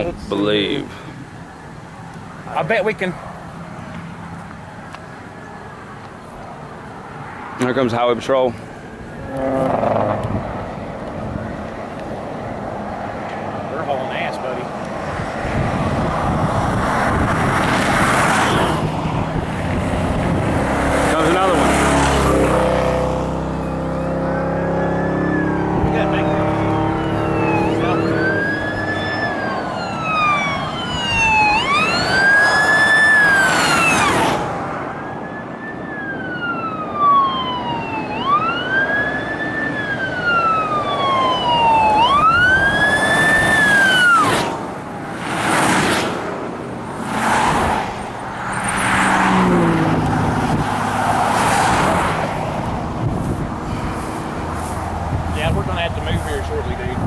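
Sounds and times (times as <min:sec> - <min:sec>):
vehicles rushing past on wet road: 0:00.3 - 0:57.0
police siren wailing: 0:09.1 - 0:10.8, 0:18.5 - 0:44.5.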